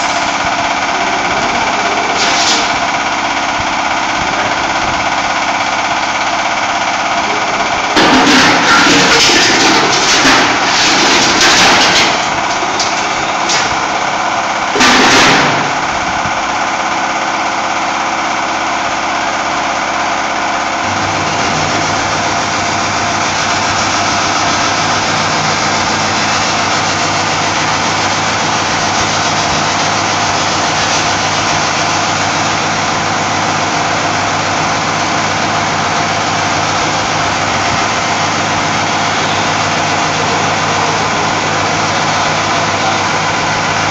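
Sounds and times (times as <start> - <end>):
loud mechanical burst: 0.0 - 16.4
welding machine running: 0.0 - 43.9.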